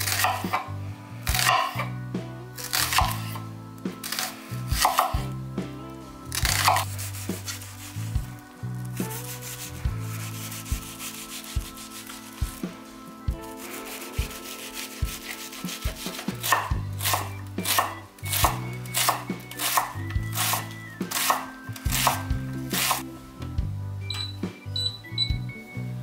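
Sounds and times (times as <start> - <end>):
knife slicing onion: 0.0 - 0.6
knife chopping on wooden board: 0.1 - 0.6, 1.3 - 1.8, 4.8 - 5.1, 15.9 - 23.0
short electronic beeps: 24.0 - 25.9.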